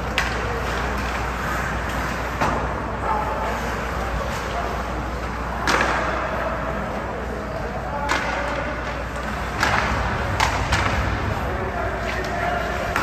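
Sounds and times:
skating and crowd noise: 0:00.0 - 0:13.0
hockey stick knocking puck: 0:05.6 - 0:06.2, 0:08.0 - 0:11.2.

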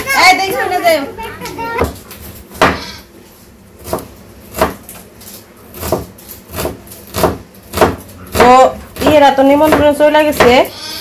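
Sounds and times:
knife chopping on wooden tabletop: 0:02.6 - 0:02.8, 0:03.8 - 0:04.9, 0:05.8 - 0:10.6.

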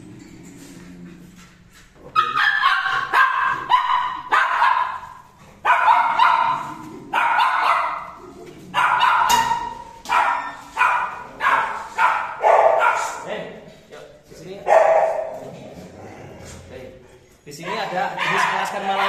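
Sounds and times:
dogs barking: 0:02.1 - 0:13.4, 0:14.5 - 0:15.6, 0:17.6 - 0:19.0.

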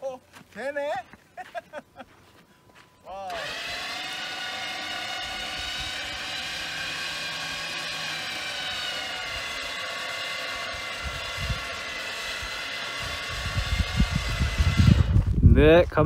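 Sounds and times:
electric winch whining: 0:03.1 - 0:15.4.

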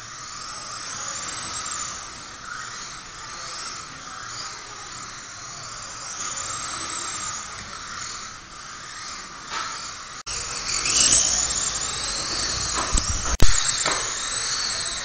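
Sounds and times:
rc car motor whine: 0:00.0 - 0:15.0.

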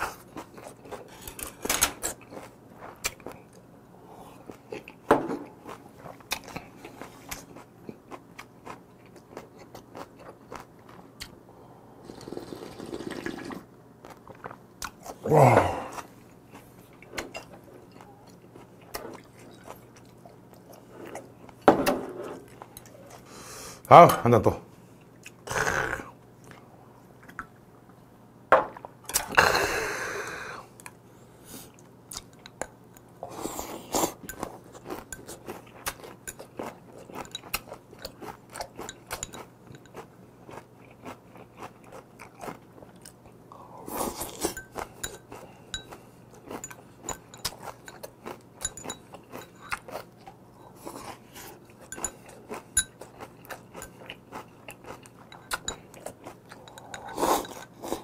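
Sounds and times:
chewing and crunching: 0:00.0 - 0:11.4, 0:14.0 - 0:21.6, 0:31.6 - 0:58.0
loud breathy burst: 0:29.4 - 0:30.7.

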